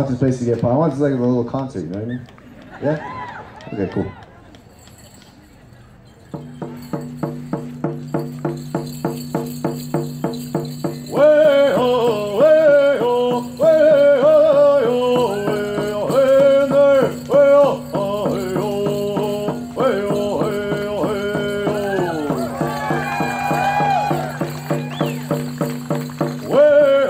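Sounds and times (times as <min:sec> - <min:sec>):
even drum beat: 0:06.3 - 0:27.0
sung melody: 0:06.4 - 0:27.0.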